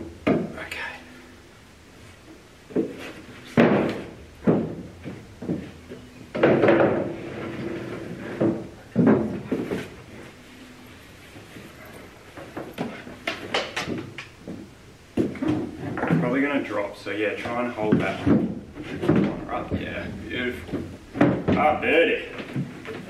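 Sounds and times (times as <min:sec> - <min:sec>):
thuds and knocks: 0:02.7 - 0:07.2, 0:08.0 - 0:09.9, 0:17.9 - 0:23.0.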